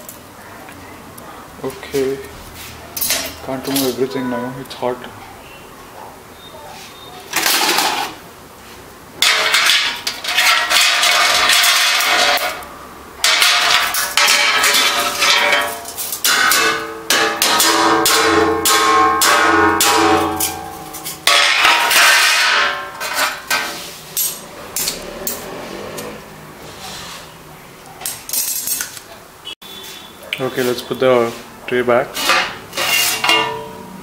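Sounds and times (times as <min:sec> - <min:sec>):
pitched metallic ringing: 0:03.0 - 0:05.7, 0:10.6 - 0:23.6, 0:32.4 - 0:34.0
utensil scraping metal tray: 0:09.2 - 0:12.6, 0:13.2 - 0:27.4, 0:29.8 - 0:33.8.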